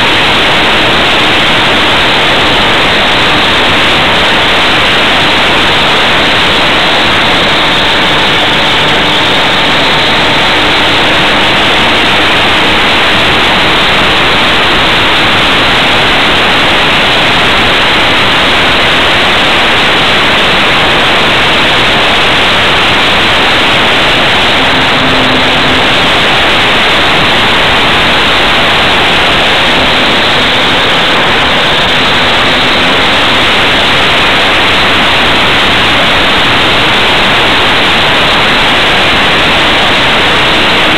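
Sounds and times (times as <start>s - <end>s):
airflow and propeller rushing: 0.0s - 40.9s
faint hum: 0.0s - 40.9s.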